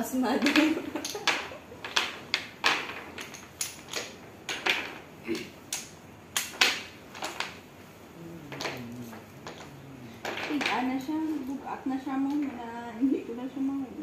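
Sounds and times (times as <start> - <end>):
wooden blocks clicking: 0.4 - 7.8, 8.4 - 11.6.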